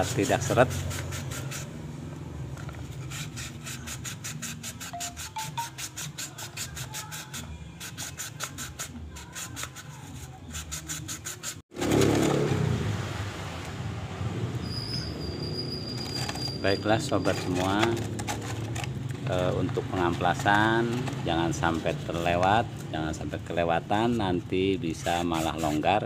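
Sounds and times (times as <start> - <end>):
sandpaper rasping on metal: 0.0 - 1.8, 2.9 - 11.6, 15.9 - 18.8, 19.4 - 22.6, 23.4 - 26.0.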